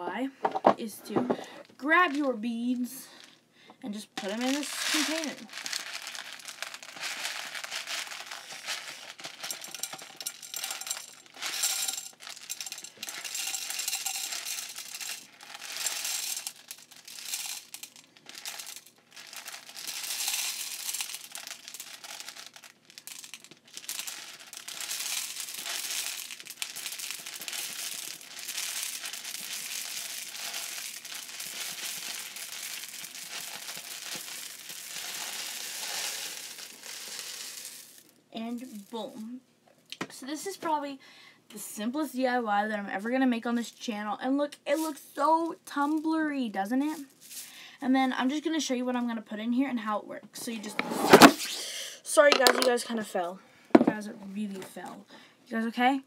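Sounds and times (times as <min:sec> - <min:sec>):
plastic beads rattling in a box: 0:01.8 - 0:03.4, 0:04.2 - 0:39.0, 0:44.7 - 0:46.2, 0:46.8 - 0:47.5, 0:52.2 - 0:52.8.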